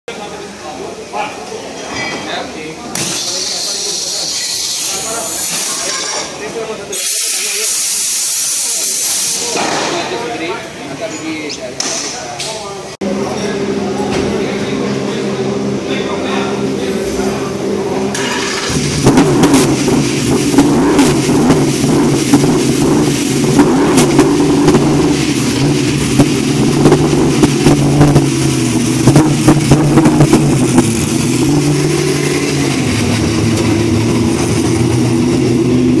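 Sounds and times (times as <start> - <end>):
race car engine idling: 12.9 - 36.0
sharp engine cracks: 18.1 - 32.4.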